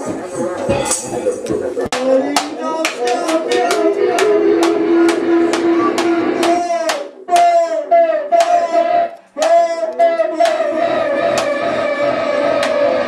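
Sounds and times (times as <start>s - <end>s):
droning electronic tone: 10.7s - 13.0s.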